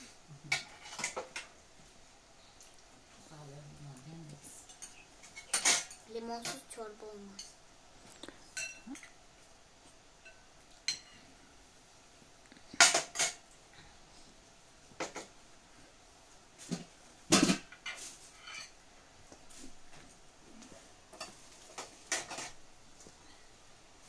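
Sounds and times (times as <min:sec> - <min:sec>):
spoons clinking against bowls: 0:08.6 - 0:09.2.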